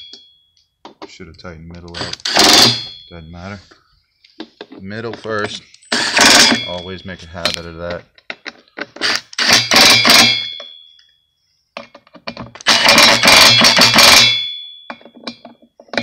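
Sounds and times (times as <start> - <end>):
metallic ring: 0.0 - 0.6, 2.0 - 3.5, 5.8 - 7.5, 9.4 - 11.1, 12.6 - 16.0
impact driver hammering: 9.0 - 10.6, 12.6 - 14.5.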